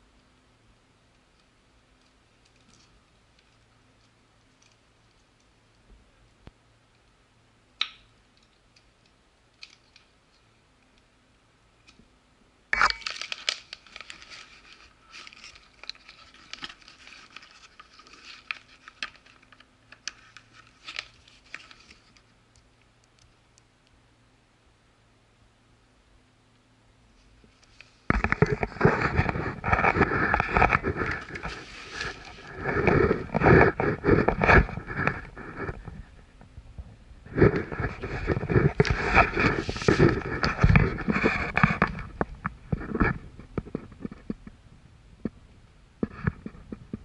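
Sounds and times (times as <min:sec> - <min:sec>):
rustling and clicking: 0:01.1 - 0:07.2, 0:12.8 - 0:24.0, 0:27.2 - 0:44.6.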